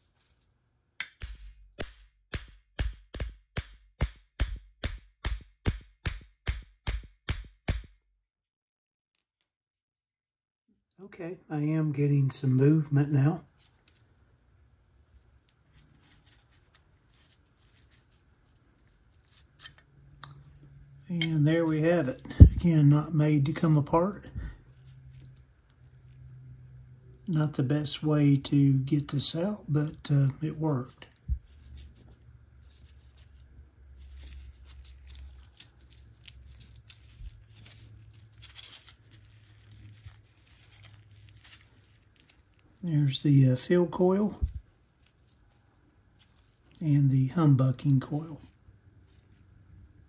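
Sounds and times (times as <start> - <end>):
low steady hum: 11.0 - 50.0.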